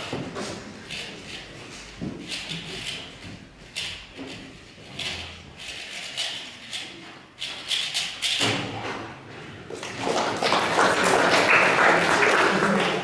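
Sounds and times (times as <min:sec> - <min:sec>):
crowd applause: 0:09.8 - 0:13.0
crowd chatter: 0:10.2 - 0:13.0.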